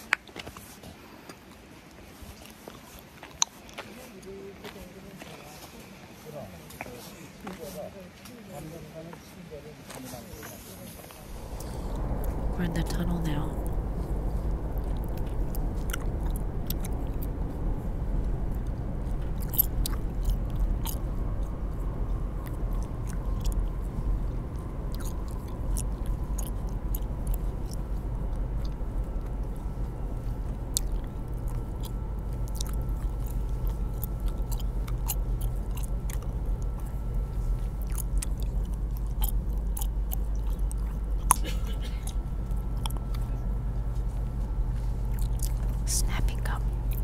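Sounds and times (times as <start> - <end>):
train carriage rumble: 10.5 - 47.0
gum chewing with wet clicks: 14.8 - 17.2, 19.1 - 21.1, 22.4 - 23.7, 24.5 - 28.0, 28.6 - 43.3, 44.7 - 47.0.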